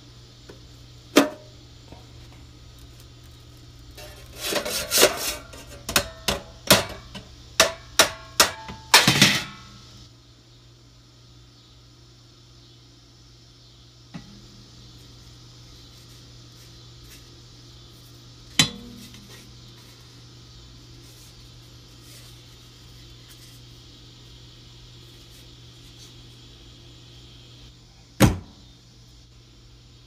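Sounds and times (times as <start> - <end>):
steady low hum: 0.0 - 30.0
sharp knocks on metal parts: 5.9 - 9.6, 18.6 - 19.2.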